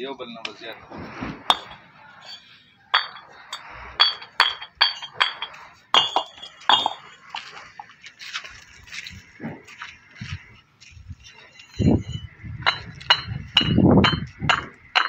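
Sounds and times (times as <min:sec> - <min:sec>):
bricks clinking together: 0:01.5 - 0:07.8, 0:11.6 - 0:15.0.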